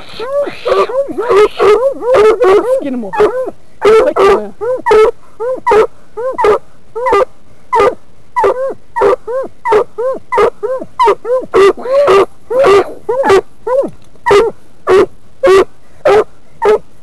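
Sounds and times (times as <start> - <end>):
dog barking in short yelps: 7.8 - 16.8.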